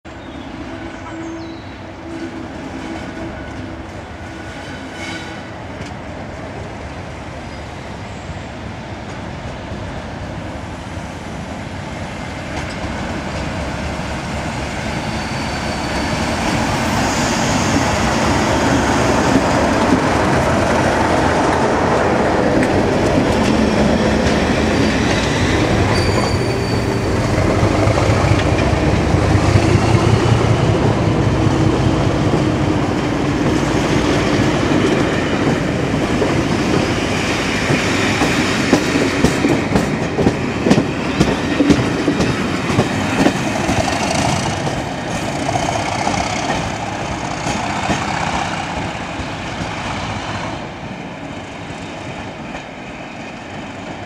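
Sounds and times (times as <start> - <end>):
diesel locomotive engine: 0.1 - 54.0
coach wheels rumbling on rails: 0.4 - 54.0.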